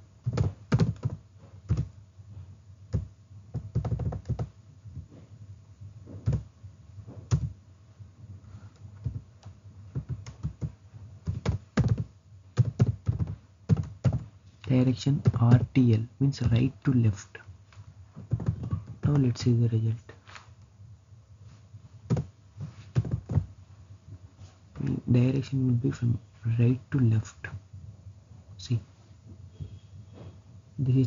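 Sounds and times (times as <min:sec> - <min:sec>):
computer keyboard typing: 0:00.2 - 0:01.9, 0:02.9 - 0:04.5, 0:06.2 - 0:06.4, 0:07.3 - 0:07.5, 0:09.0 - 0:14.3, 0:18.3 - 0:19.4, 0:22.1 - 0:22.3, 0:22.9 - 0:23.5.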